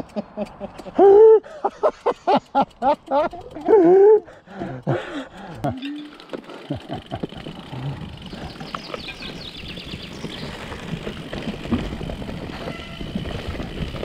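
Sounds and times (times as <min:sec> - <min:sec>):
bike tyres on dirt: 0:01.9 - 0:14.0
bike knocks and rattles: 0:04.6 - 0:14.0.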